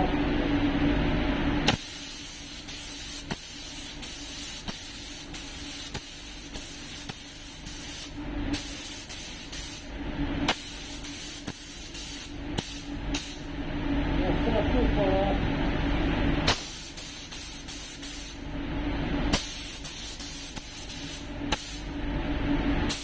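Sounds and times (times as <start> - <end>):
booth fan running: 0.0 - 23.0
spray gun hissing: 1.7 - 9.8, 10.5 - 13.4, 16.5 - 18.4, 19.4 - 21.8.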